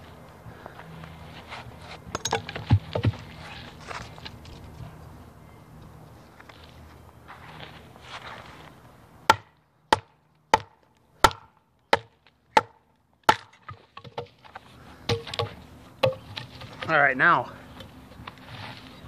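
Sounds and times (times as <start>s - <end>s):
chopper chopping wood: 2.3s - 3.3s, 9.3s - 14.3s.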